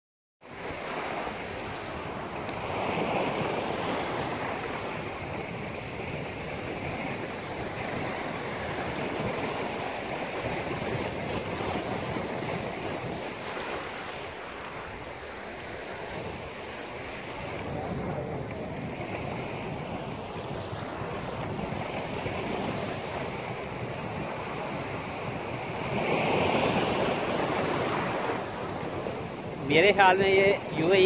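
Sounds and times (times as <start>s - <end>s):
wind buffeting microphone: 0.5s - 31.0s
sea waves breaking on rocks: 0.6s - 31.0s.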